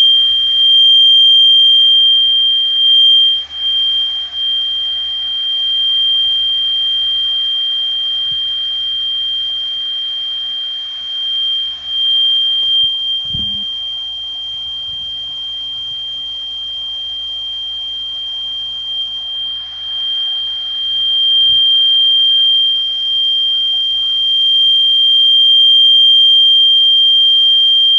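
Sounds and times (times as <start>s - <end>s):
low mains hum: 0.0s - 27.9s
steady sine-wave test tone: 0.0s - 27.9s
low knock: 13.2s - 13.7s.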